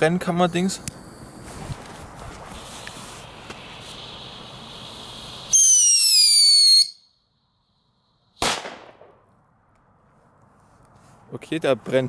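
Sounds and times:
shrill firework whistle: 0:05.4 - 0:07.2
firecracker bang: 0:08.4 - 0:09.2.

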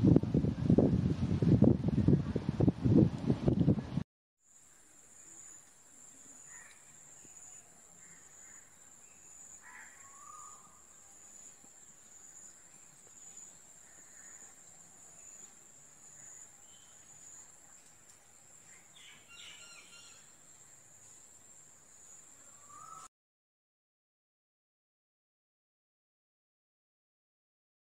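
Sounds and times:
bird chirps: 0:06.4 - 0:11.6, 0:18.7 - 0:20.3, 0:22.5 - 0:23.1.

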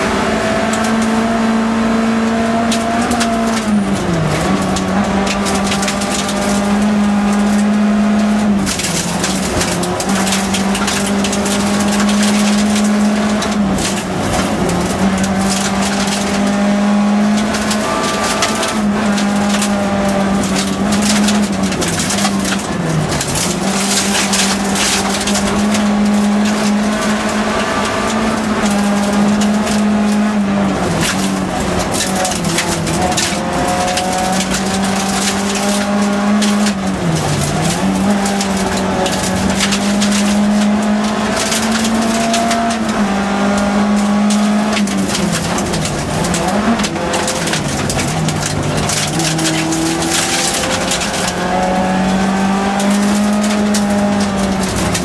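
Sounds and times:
rally car engine at high revs: 0:00.0 - 0:55.0
gravel rattling against underbody: 0:02.3 - 0:55.0.

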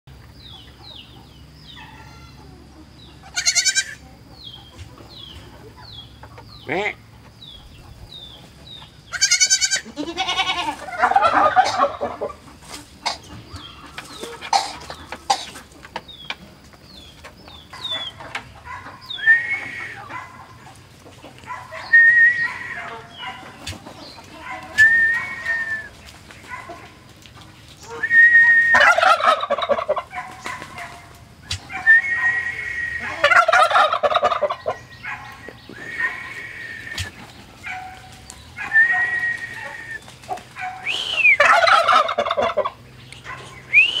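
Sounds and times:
chickens clucking: 0:00.1 - 0:44.0
bird chirping: 0:00.4 - 0:09.6, 0:13.2 - 0:20.7, 0:42.6 - 0:44.0
turkey calling: 0:00.5 - 0:16.4, 0:17.0 - 0:27.0, 0:27.7 - 0:44.0
goat kid bleating: 0:03.2 - 0:04.0, 0:09.1 - 0:10.9.

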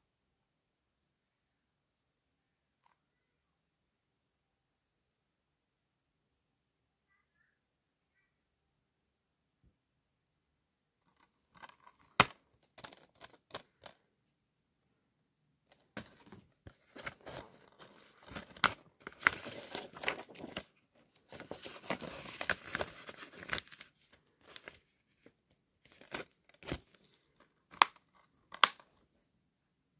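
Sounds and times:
paper rustling and crinkling: 0:15.7 - 0:28.8
plastic case clicks: 0:27.7 - 0:28.8.

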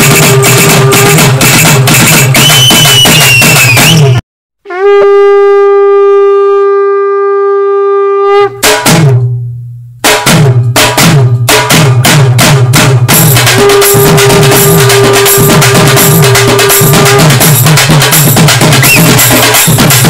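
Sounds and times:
drum beat: 0:00.0 - 0:04.2, 0:08.6 - 0:09.2, 0:10.0 - 0:20.0
long held note: 0:04.6 - 0:08.6, 0:13.6 - 0:17.3.

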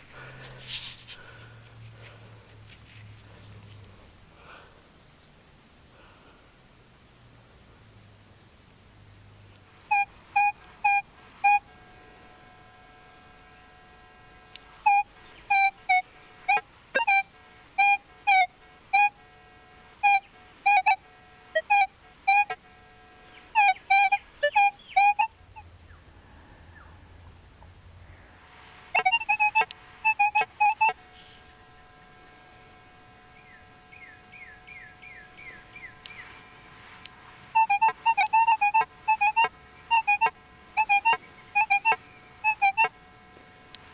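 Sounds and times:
metal detector beeping: 0:09.9 - 0:19.3, 0:19.9 - 0:25.3, 0:28.9 - 0:36.7, 0:37.5 - 0:43.1.

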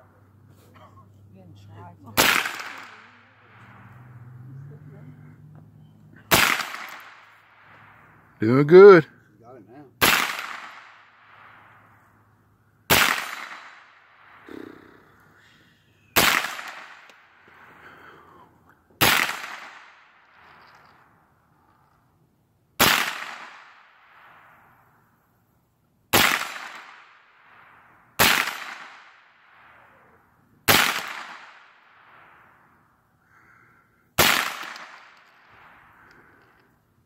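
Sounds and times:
rifle shots with echo: 0:02.2 - 0:03.8, 0:06.3 - 0:08.0, 0:10.0 - 0:11.7, 0:12.9 - 0:14.4, 0:16.2 - 0:17.4, 0:19.0 - 0:20.5, 0:22.8 - 0:24.6, 0:26.1 - 0:29.9, 0:30.7 - 0:32.5, 0:34.2 - 0:36.0.

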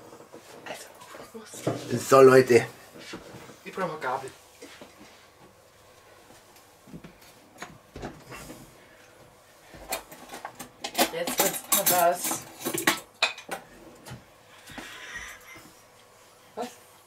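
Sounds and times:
cutlery clinking on china: 0:10.8 - 0:13.5.

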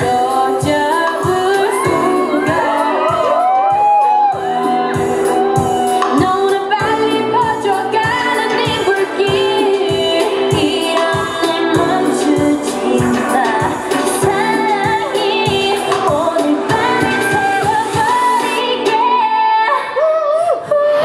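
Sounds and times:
pop song with singing: 0:00.0 - 0:21.0.

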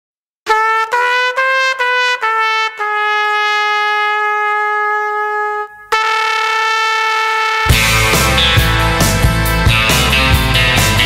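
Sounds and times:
trumpet playing notes: 0:00.4 - 0:08.9.

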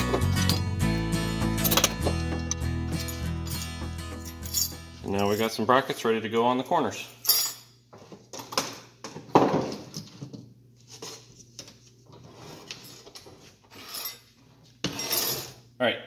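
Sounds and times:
metal brackets clinking: 0:01.6 - 0:05.6.

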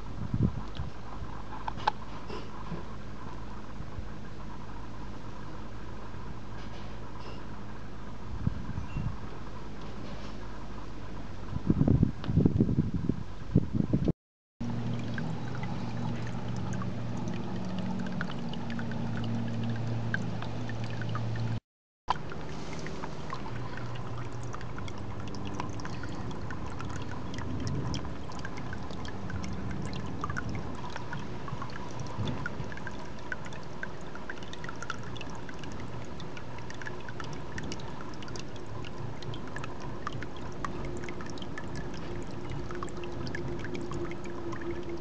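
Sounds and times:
water pouring into a pond: 0:14.6 - 0:45.0.

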